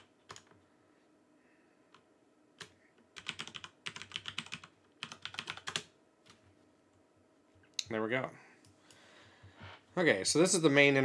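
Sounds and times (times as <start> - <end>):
computer keyboard typing: 0.0 - 0.6, 2.6 - 6.4.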